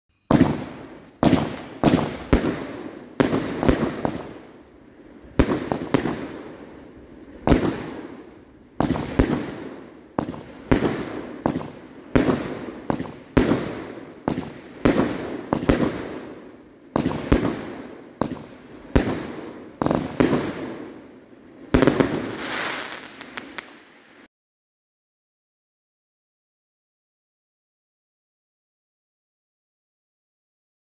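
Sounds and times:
fireworks bangs: 0.3 - 24.3.

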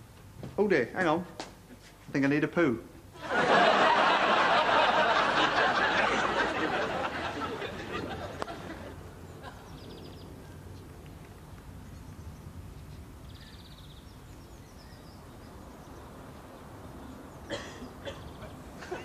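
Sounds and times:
studio audience laughter: 3.2 - 9.0
birdsong trills: 9.2 - 10.9, 11.8 - 19.0.

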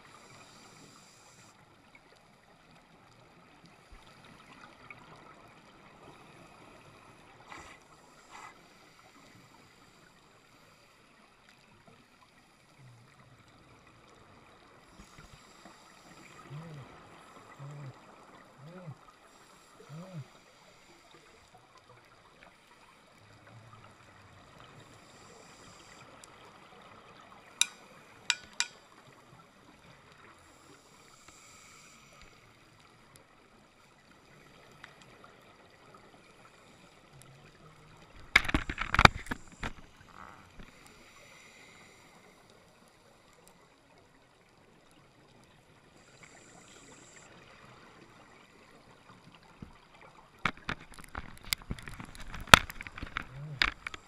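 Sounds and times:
steady background hiss: 0.0 - 2.1
diver's regulator breathing: 6.0 - 11.1, 30.4 - 32.6, 38.3 - 43.2.

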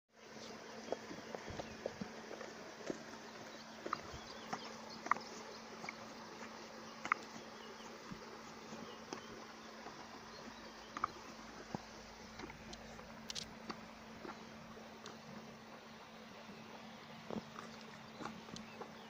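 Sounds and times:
low buzzing hum: 0.2 - 19.0
horse licking fur: 0.8 - 15.6.

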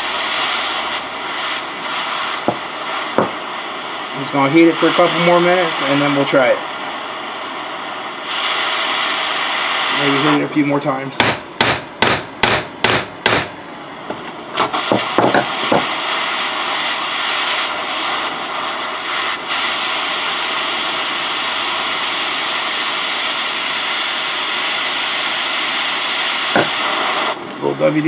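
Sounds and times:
propane torch hissing: 0.0 - 28.0
hammer striking metal: 11.2 - 13.5.

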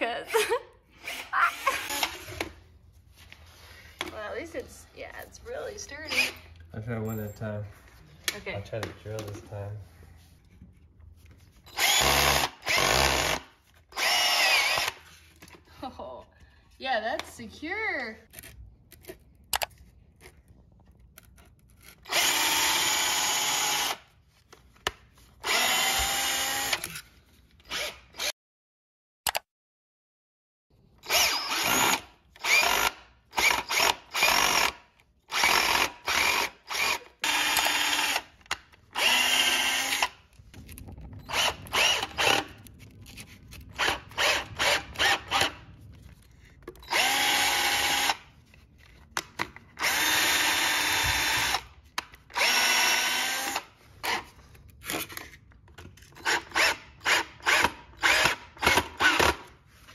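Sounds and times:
cordless drill whirring: 1.0 - 2.6, 6.0 - 6.6, 11.7 - 15.2, 21.9 - 24.2, 25.4 - 28.3, 31.0 - 40.3, 41.2 - 42.7, 43.7 - 45.7, 46.8 - 48.3, 49.8 - 54.4, 56.2 - 59.5.

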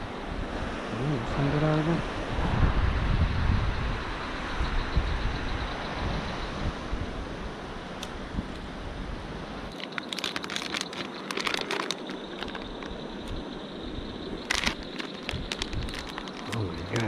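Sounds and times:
night insects droning: 0.0 - 17.0
crinkling handling noise: 9.7 - 13.4, 14.4 - 17.0.

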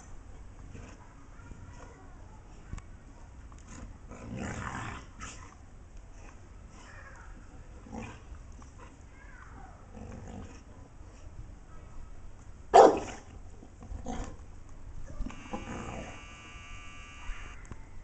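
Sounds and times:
dogs growling: 3.6 - 5.6, 9.9 - 10.8
dog barking: 12.7 - 13.2.

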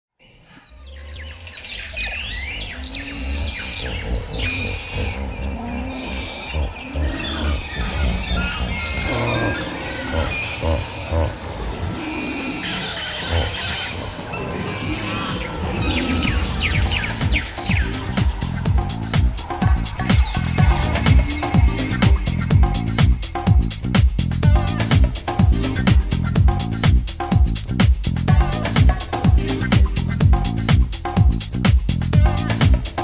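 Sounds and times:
bird calls and chirps: 0.2 - 23.6
low bass: 0.9 - 12.0, 15.3 - 33.0.

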